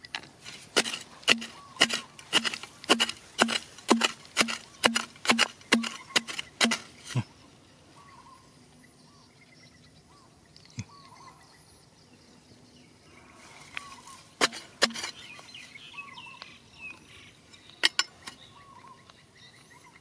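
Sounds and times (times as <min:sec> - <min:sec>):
sharp knocks of digging tool: 0:00.0 - 0:07.2, 0:14.4 - 0:15.3
digging tool scraping stony soil: 0:00.0 - 0:07.3, 0:13.4 - 0:15.8
small birds chirping: 0:00.7 - 0:20.0.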